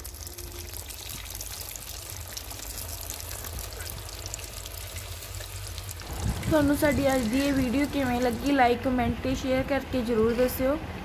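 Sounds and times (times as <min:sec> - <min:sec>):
oil sizzling and crackling: 0:00.0 - 0:08.8.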